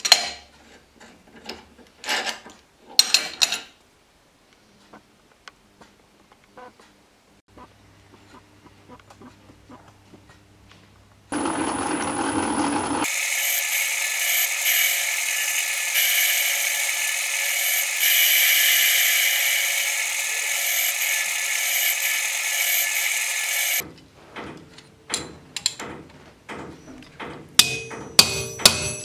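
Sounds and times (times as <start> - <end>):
metal lathe motor whine: 11.3 - 23.8.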